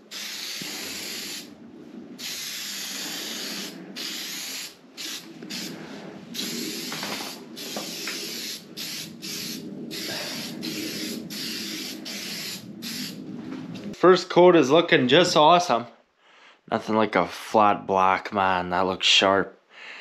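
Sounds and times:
aerosol spray can hissing: 0.0 - 1.5, 2.2 - 5.7, 6.4 - 13.2.

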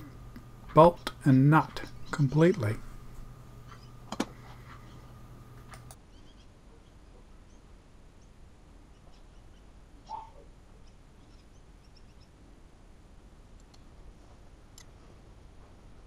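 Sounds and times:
faint bird chirps: 6.0 - 12.4.

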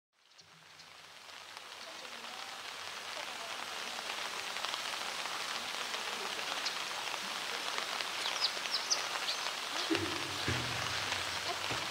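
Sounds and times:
rain on hard surfaces: 0.1 - 11.9
water drips ticking: 8.1 - 11.9.

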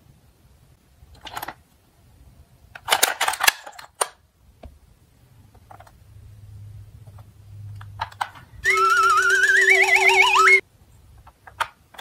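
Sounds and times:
plastic toy clicking and rattling: 1.2 - 1.6, 2.8 - 4.2, 7.8 - 9.4, 11.2 - 12.0.

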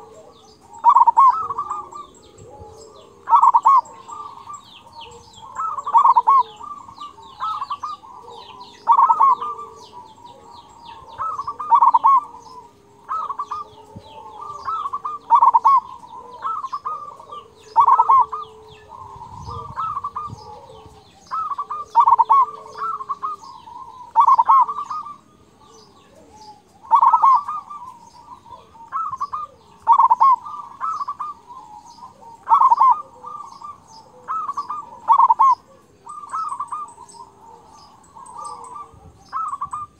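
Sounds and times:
dove cooing: 0.0 - 39.9
small birds chirping: 0.0 - 39.9.

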